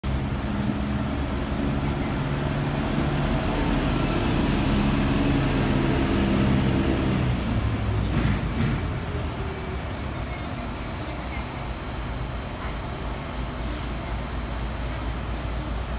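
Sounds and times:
bus diesel engine idling: 0:00.0 - 0:15.9.

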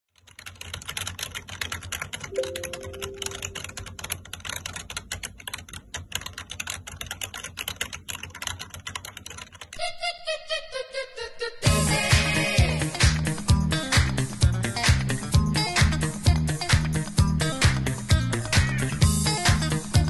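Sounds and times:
rapid typing on keyboard: 0:00.1 - 0:09.8.

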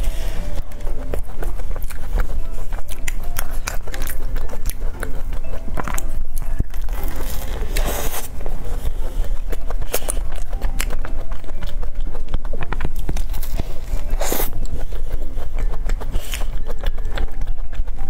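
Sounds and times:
crumbly pastry crackling when chewed: 0:00.0 - 0:18.0
mouth clicks: 0:00.0 - 0:18.0.

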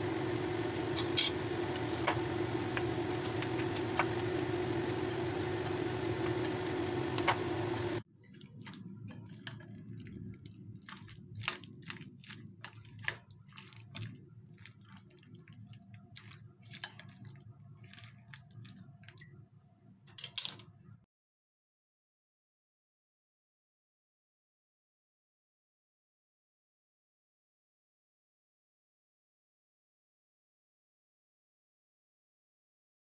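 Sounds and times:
appliance mechanical hum: 0:00.0 - 0:08.0
chopsticks stirring cabbage in bowl: 0:00.0 - 0:19.3
wet squishing of mixed cabbage: 0:08.1 - 0:19.4.

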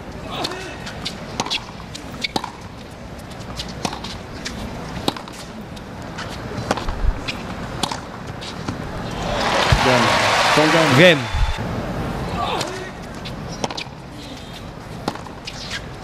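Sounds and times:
rackets striking tennis ball: 0:00.4 - 0:10.1, 0:12.5 - 0:14.0, 0:15.0 - 0:15.9.

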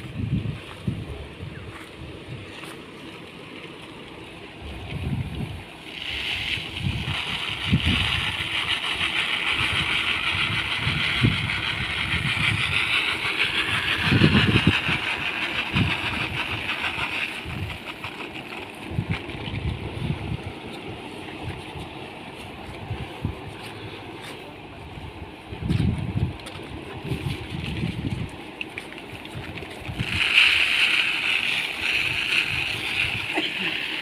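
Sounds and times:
grain pouring into machine: 0:05.8 - 0:19.4, 0:29.9 - 0:34.0.

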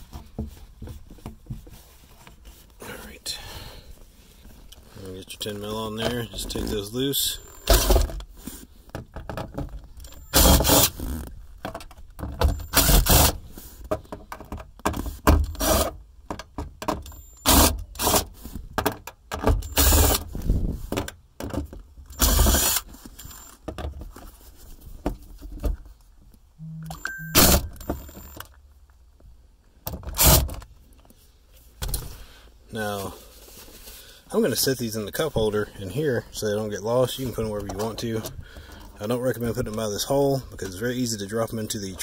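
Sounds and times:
cordless impact driver bursts: 0:10.3 - 0:11.0, 0:12.7 - 0:13.4, 0:17.4 - 0:18.2, 0:19.6 - 0:20.2, 0:22.2 - 0:22.8, 0:30.2 - 0:30.5.

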